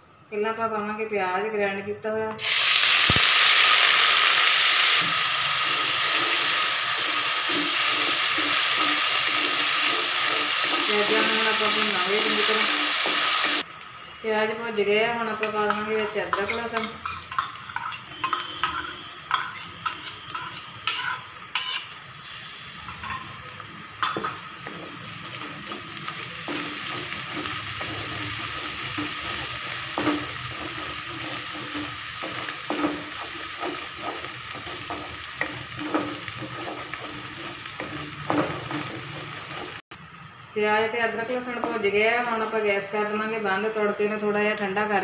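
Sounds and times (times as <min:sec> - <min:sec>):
food sizzling in hot oil: 0:02.4 - 0:43.9
spatula scraping pan: 0:05.0 - 0:13.6, 0:15.4 - 0:22.0, 0:24.0 - 0:39.8
spatula knocking on pan: 0:26.5 - 0:39.8.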